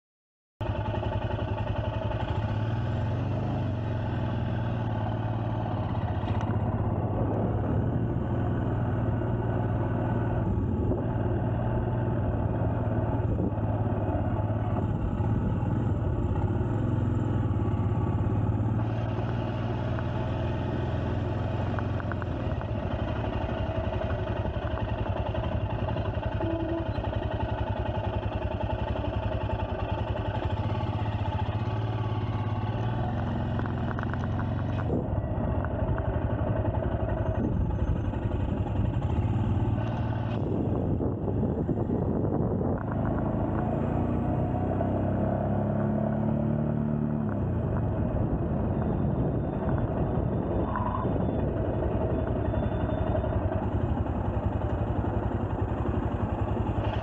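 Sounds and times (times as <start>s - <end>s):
motorcycle engine running at low revs: 0.6s - 57.0s.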